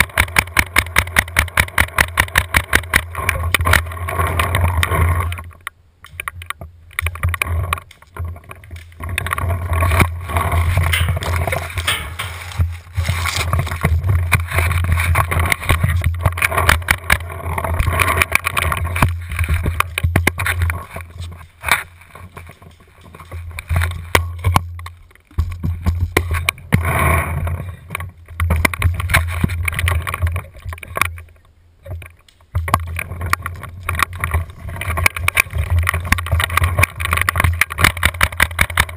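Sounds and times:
wind rumble: 6.6s - 24.8s.

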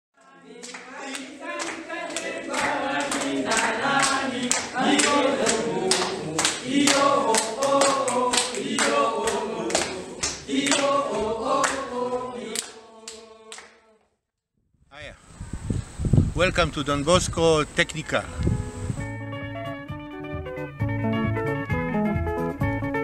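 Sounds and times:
rhythmic hand clapping: 0.2s - 13.8s
group of voices singing: 0.2s - 14.1s.

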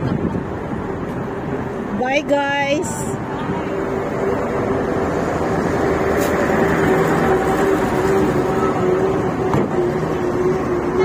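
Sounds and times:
vehicle engines idling: 0.0s - 11.0s.

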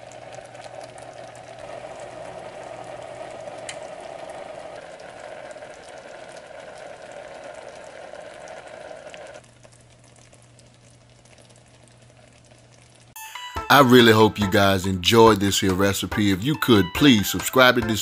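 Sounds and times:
gravy bubbling in a pan: 0.0s - 13.2s.

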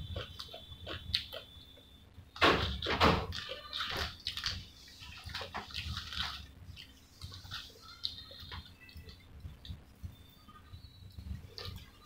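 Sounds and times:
wet chewing and lip-smacking: 0.0s - 1.6s, 3.3s - 12.0s.

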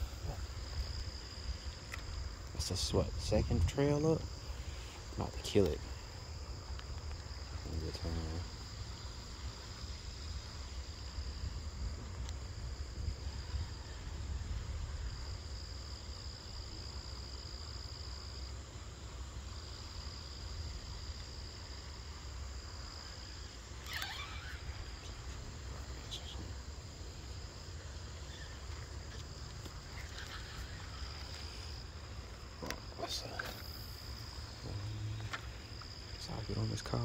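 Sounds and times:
crickets trilling: 0.0s - 37.0s
low steady rumble: 24.6s - 37.0s.

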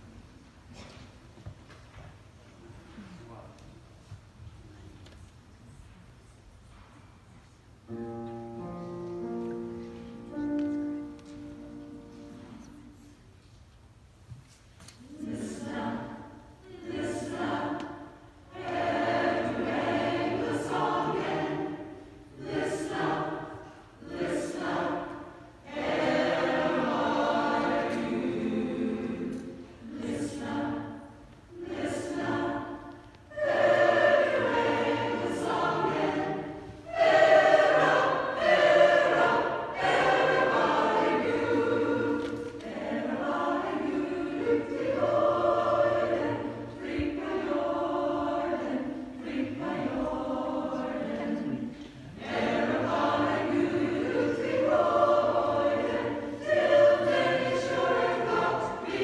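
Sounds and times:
mixed choir singing: 15.0s - 59.0s.

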